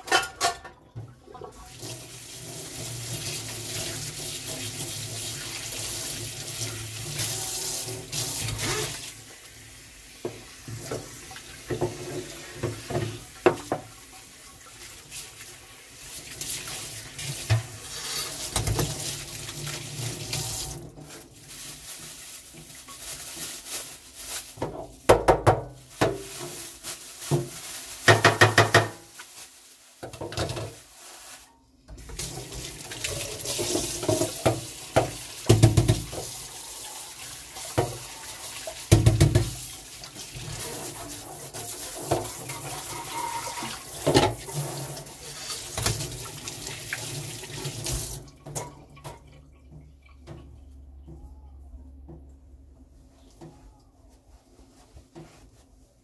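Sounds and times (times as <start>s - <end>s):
tap water running into sink: 0.9s - 9.4s, 10.1s - 21.1s, 31.9s - 50.5s.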